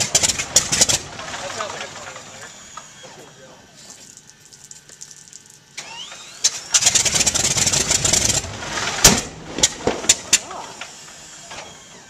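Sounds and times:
loud engine bang: 5.8 - 10.9.

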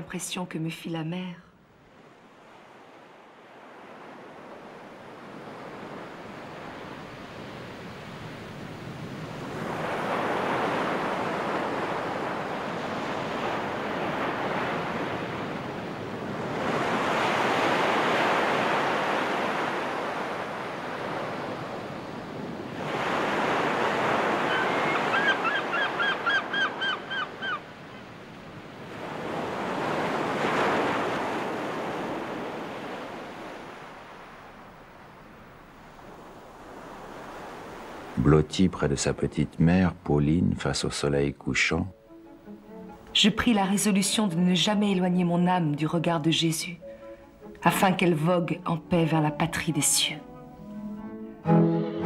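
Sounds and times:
waves breaking on beach: 1.7 - 38.8
bird short calls: 24.4 - 27.6.

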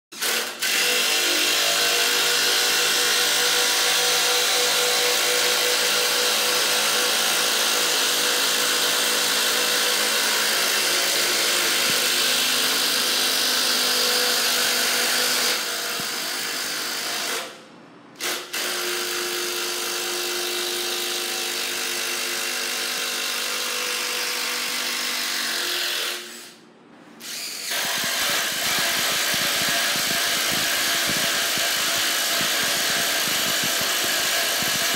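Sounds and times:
impact driver driving screws into wood: 27.2 - 34.9.

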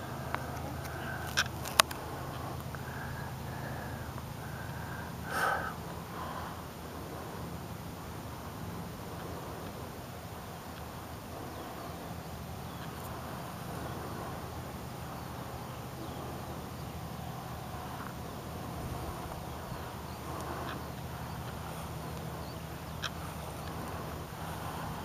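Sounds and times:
model plane motor humming: 11.3 - 25.0
faint bird chirps: 11.4 - 25.0.

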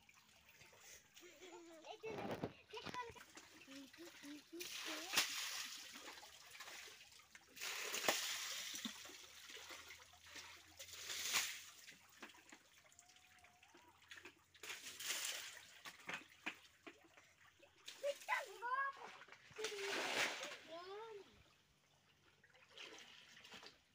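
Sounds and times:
water splashing against tyre: 0.0 - 13.2, 14.0 - 21.1.

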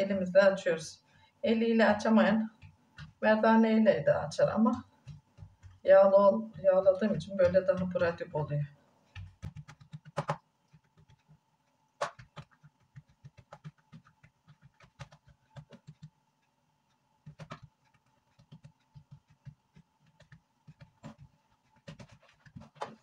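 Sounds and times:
hands patting dough: 1.9 - 3.3, 4.4 - 8.3, 9.1 - 16.2, 17.2 - 23.0.

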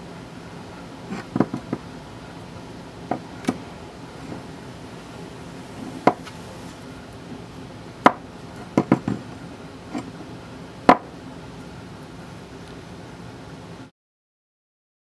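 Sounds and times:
background hiss: 0.0 - 13.8
metal part knocking on wooden bench: 8.8 - 9.2.

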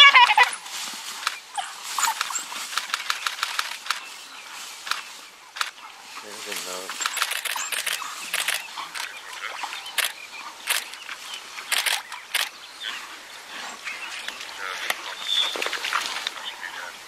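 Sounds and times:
outdoor background hiss: 0.0 - 17.0
wild dogs attacking: 1.6 - 4.0
camera shutters clicking: 2.0 - 4.0, 7.0 - 9.2, 10.0 - 11.0, 11.7 - 12.5.

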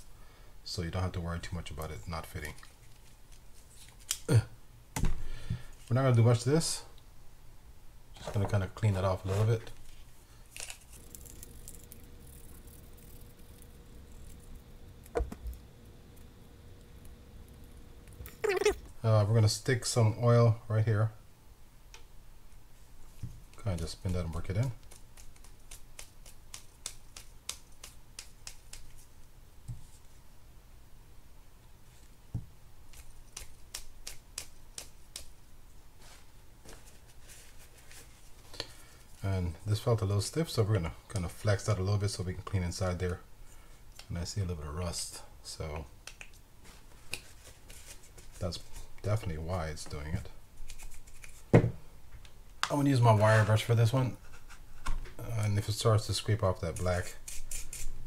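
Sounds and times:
cotton swab rustling and scraping: 2.4 - 4.2, 8.2 - 14.7, 36.0 - 39.3, 46.6 - 49.9, 50.5 - 51.5, 56.5 - 58.0.

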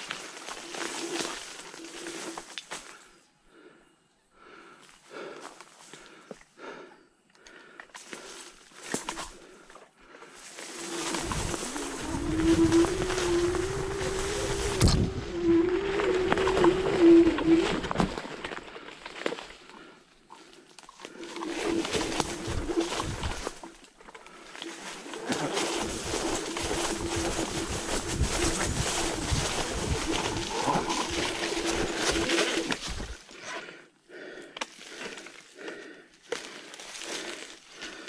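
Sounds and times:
electric scooter motor whine: 10.6 - 18.6, 24.5 - 33.2
rustling and scuffing: 24.6 - 33.2.

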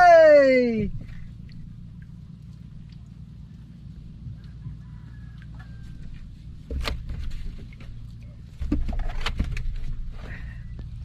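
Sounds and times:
steady low rumble: 0.0 - 11.0
knocks and clicks against boat: 5.4 - 10.2.

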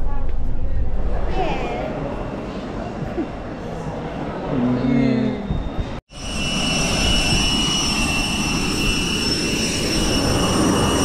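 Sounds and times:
jet engine whine: 5.5 - 11.0.

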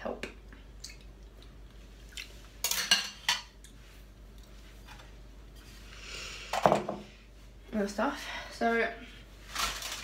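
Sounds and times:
utensils and crockery clattering: 2.6 - 3.6.

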